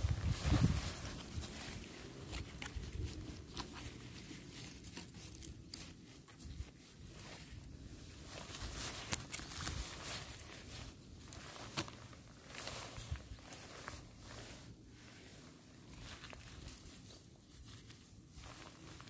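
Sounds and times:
knife scraping dry soil: 0.2s - 7.7s.

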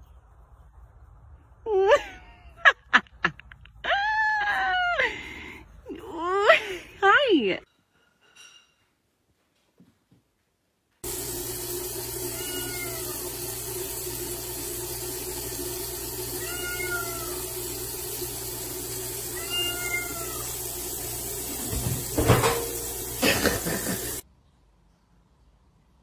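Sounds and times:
cat meowing: 12.3s - 13.3s, 16.3s - 17.6s, 19.3s - 20.6s
toilet seat dropping: 21.6s - 23.6s.

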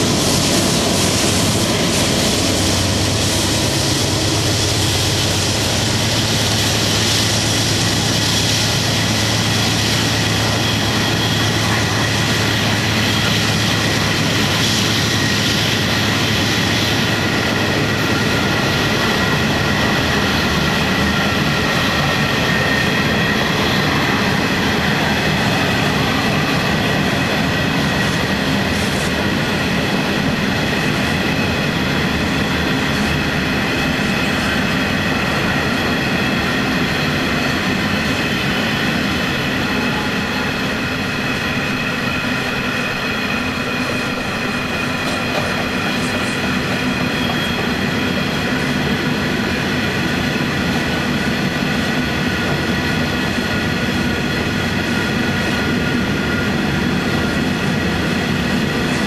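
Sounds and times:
diesel locomotive engine drone: 0.0s - 59.0s
train wagons rumbling: 0.0s - 59.0s
high wheel squeal: 32.0s - 48.6s.

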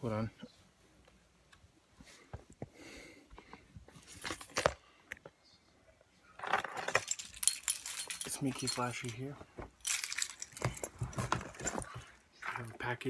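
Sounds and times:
handling noise clicks and rustles: 3.9s - 5.3s, 6.4s - 12.2s.

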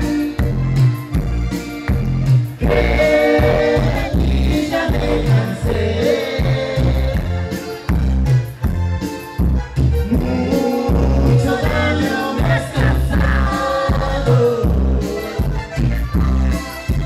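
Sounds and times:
keyboard: 0.0s - 17.0s
steady bass beat: 0.0s - 17.0s
man singing into a microphone: 2.6s - 7.3s, 10.0s - 15.8s.

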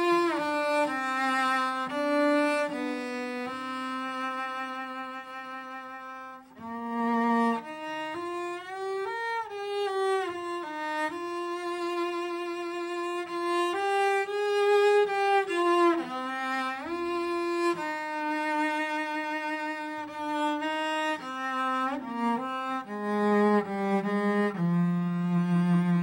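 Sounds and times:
bowed string instrument melody: 0.0s - 26.0s.

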